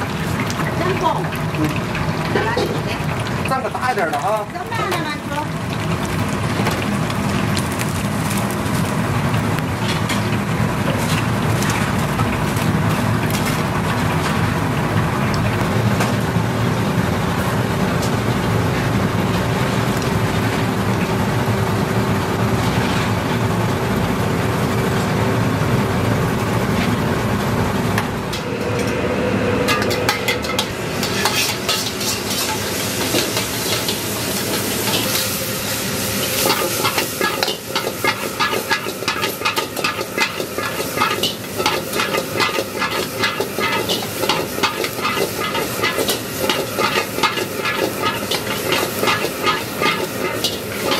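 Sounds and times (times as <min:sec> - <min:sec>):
oil sizzling in a wok: 0:00.0 - 0:28.7, 0:29.6 - 0:50.9
low kitchen rumble: 0:00.0 - 0:50.9
metal ladle scraping a wok: 0:29.7 - 0:50.9.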